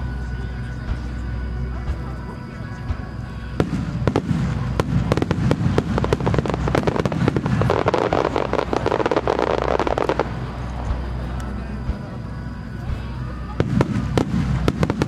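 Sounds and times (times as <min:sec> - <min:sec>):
fireworks bangs and crackle: 0:03.1 - 0:12.2, 0:13.5 - 0:15.0.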